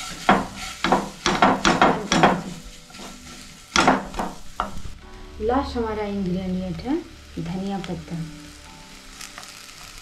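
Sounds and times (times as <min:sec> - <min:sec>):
spatula scraping a frying pan: 0:00.0 - 0:04.8
food frying: 0:00.0 - 0:10.0.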